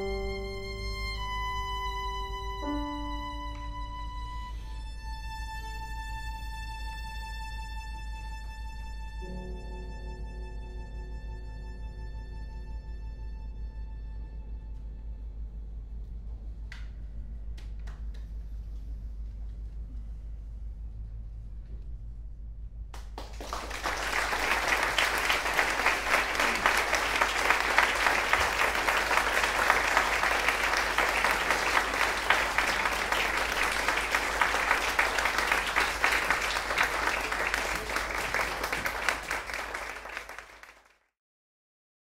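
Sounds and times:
audience applauding: 0.0 - 1.3, 23.0 - 41.0.

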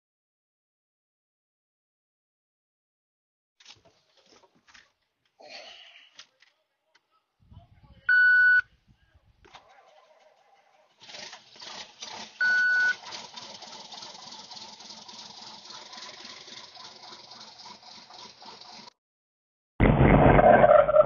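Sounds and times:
diesel engine starting and idling: 9.5 - 19.0
short high beep: 12.4 - 13.0.

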